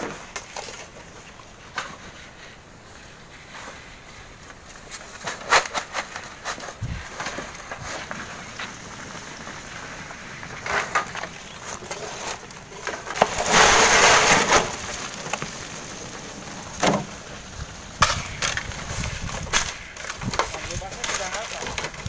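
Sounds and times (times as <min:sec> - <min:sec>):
gravel pouring down rocky slope: 0:00.6 - 0:22.0
stones and wheelbarrow knocking: 0:04.5 - 0:17.3, 0:18.0 - 0:22.0.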